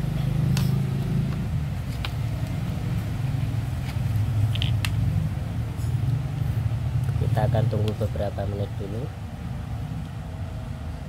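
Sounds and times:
low engine rumble: 0.0 - 11.0.

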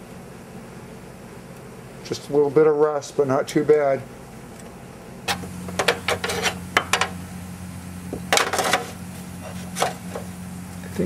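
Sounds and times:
steady low hum: 0.0 - 11.0
sharp clicks and metallic knocks: 5.3 - 7.2.

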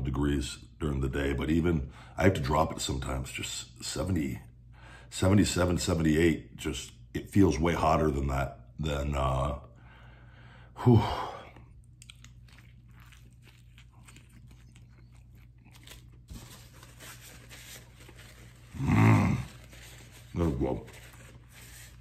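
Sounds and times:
man chewing crunchy food: 11.4 - 20.4.

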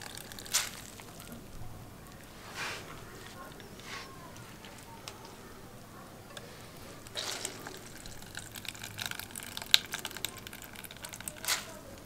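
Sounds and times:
juice dripping into plastic bowl: 0.0 - 2.3, 6.3 - 12.0
grated potato squelching: 6.4 - 12.0.

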